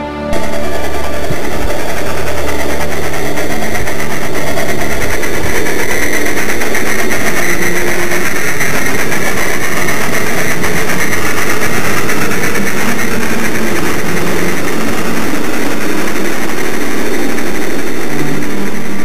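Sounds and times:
model train running on track: 0.3s - 19.0s.

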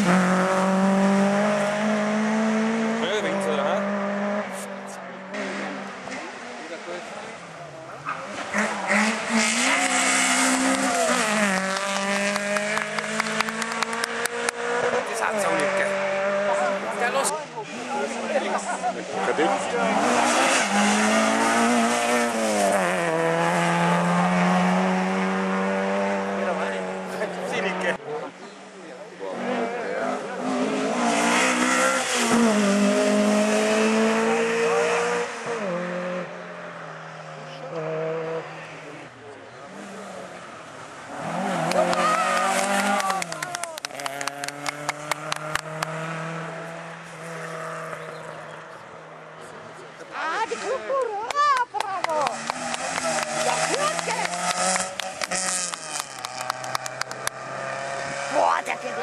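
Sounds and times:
tyre and road noise: 0.0s - 59.0s
rally car engine driving past: 17.7s - 28.0s, 29.3s - 50.9s, 52.2s - 59.0s.

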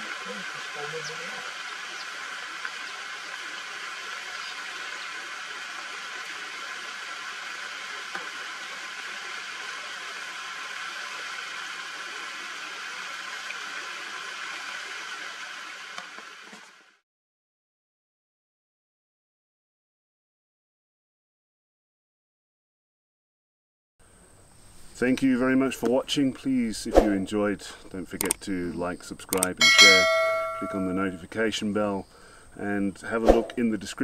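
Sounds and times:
insect chorus hiss: 24.0s - 34.0s.

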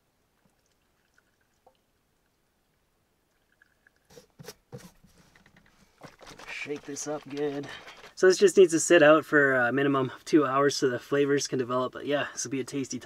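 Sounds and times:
liquid trickling into jar: 0.4s - 2.4s, 3.2s - 4.4s.

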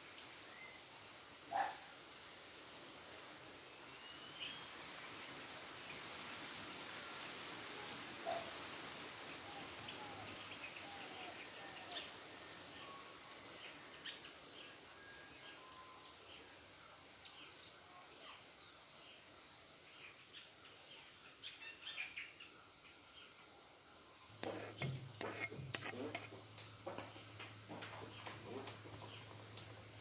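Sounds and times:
utensils and seeds clattering: 24.3s - 29.8s
spatula stirring seeds in wok: 24.4s - 26.4s.

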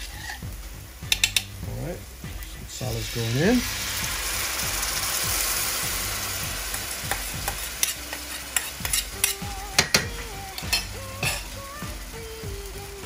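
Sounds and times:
metal spoon scraping steel pan: 0.0s - 0.4s, 7.8s - 10.0s
masala sizzling in hot oil: 0.0s - 13.0s.

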